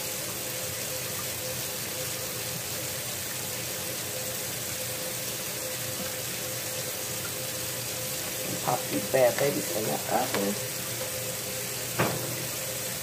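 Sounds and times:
water boiling hiss: 0.0s - 13.0s.

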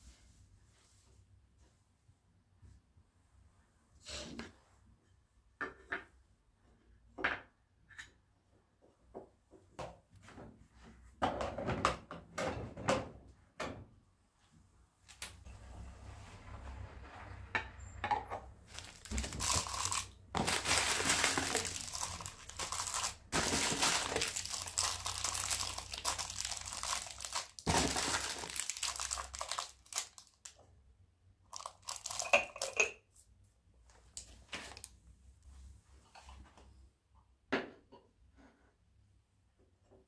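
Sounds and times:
crinkly material rustling: 18.6s - 30.5s, 31.5s - 32.7s.

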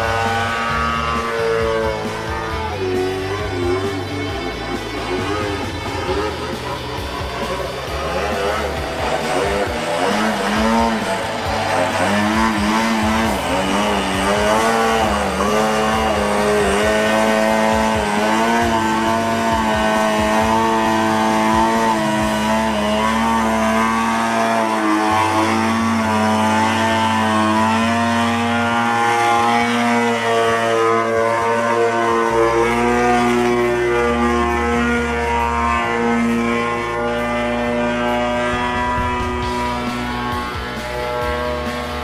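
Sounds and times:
model plane engine running: 0.0s - 42.0s.

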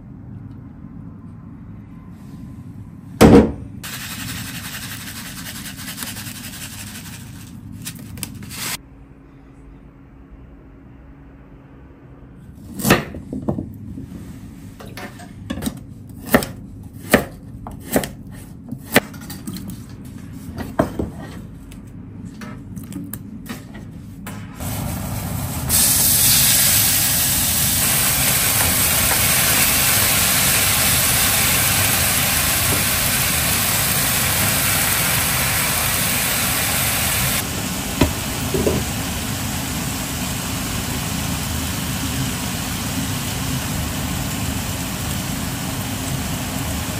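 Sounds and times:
knife chopping on cutting board: 15.6s - 19.1s
meat sizzling in frying pan: 25.7s - 37.4s.

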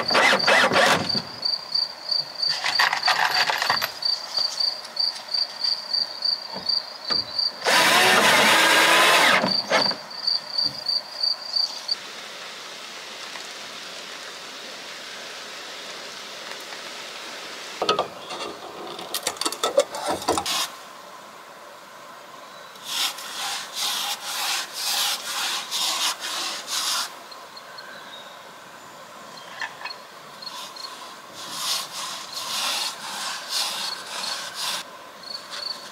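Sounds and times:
sawing or rasping wood: 0.0s - 1.2s, 7.6s - 9.9s, 22.8s - 27.2s, 30.6s - 34.9s.

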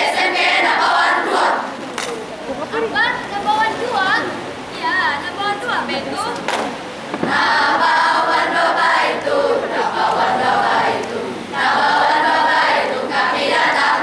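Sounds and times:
group chanting in unison: 0.0s - 1.8s, 7.2s - 14.0s.

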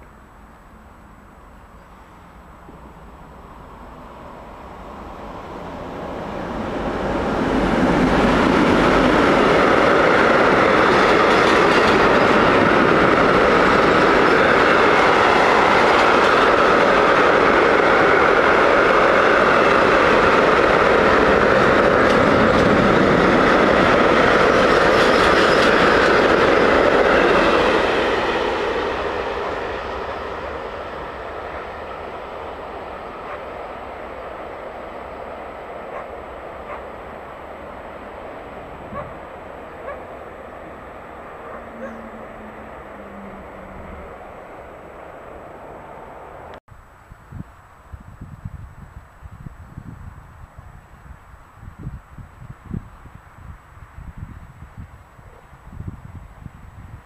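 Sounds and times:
freight train wheels rumbling on rail: 1.8s - 46.6s.

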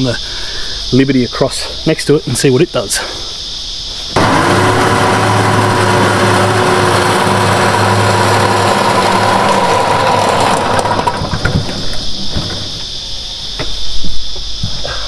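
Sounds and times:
insect buzzing: 0.0s - 15.0s
lawn mower humming: 4.2s - 12.6s.

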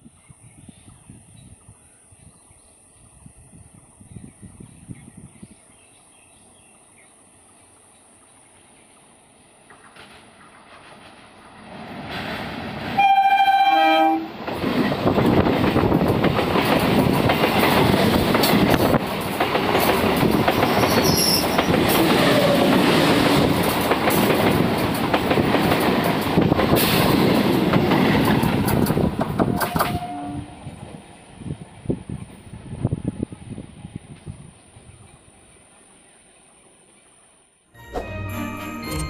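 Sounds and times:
train wheels on bridge rails: 9.6s - 13.5s, 14.1s - 30.2s
train horn blast: 13.0s - 14.4s, 29.5s - 30.6s.

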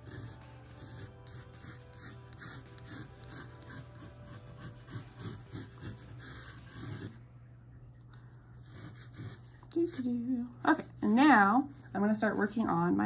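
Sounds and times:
pencil scratching on paper: 0.0s - 7.2s, 8.6s - 10.9s.

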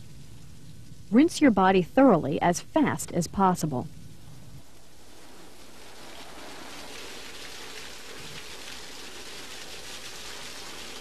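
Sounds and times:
shower water pouring and splashing: 5.0s - 11.0s.

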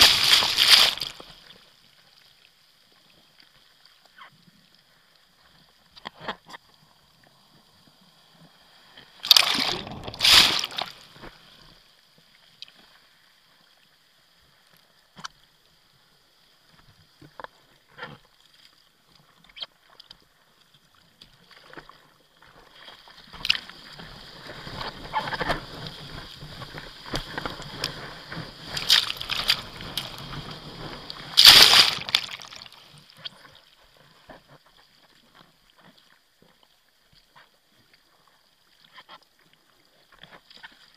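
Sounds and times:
churning water rush: 0.0s - 1.2s, 9.2s - 11.2s, 31.1s - 32.8s
water splashing: 0.0s - 1.5s, 9.2s - 11.5s, 22.8s - 33.5s.

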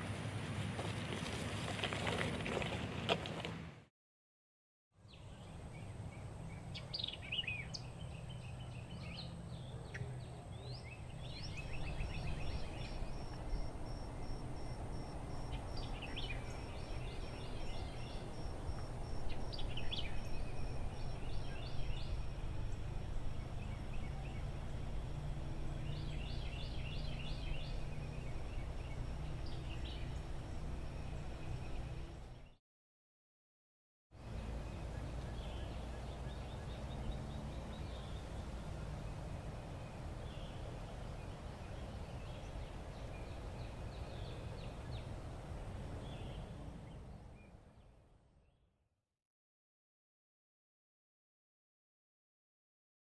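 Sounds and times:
birds chirping and trilling: 5.0s - 32.6s
steady low rumble: 10.8s - 32.6s.

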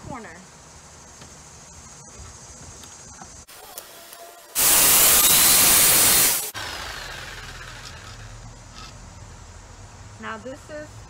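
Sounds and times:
jigsaw cutting wood: 4.6s - 8.3s.

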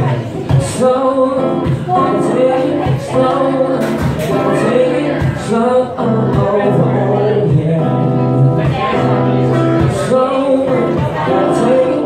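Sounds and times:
acoustic guitar strumming: 0.0s - 12.0s
man singing into a microphone: 0.0s - 12.0s.

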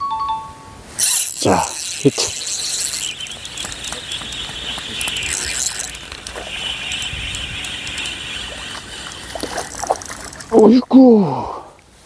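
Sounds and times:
steady hiss: 0.9s - 10.4s
fishing reel clicking: 1.0s - 10.5s.

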